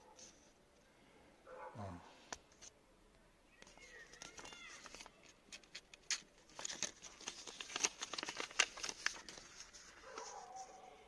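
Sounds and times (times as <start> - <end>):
paper crinkling: 3.6 - 11.0.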